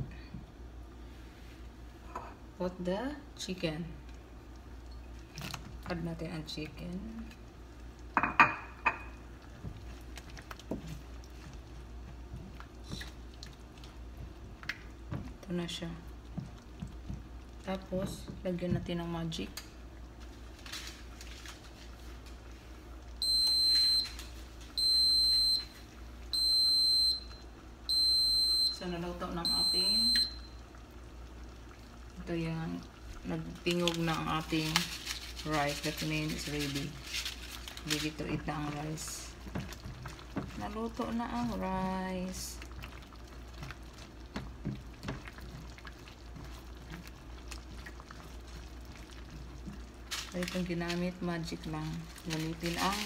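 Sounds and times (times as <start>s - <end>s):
sauce simmering in a pan: 0.6s - 36.3s, 37.0s - 52.8s
rice cooker beeps: 23.2s - 24.2s, 24.8s - 25.7s, 26.3s - 28.8s, 29.4s - 30.6s.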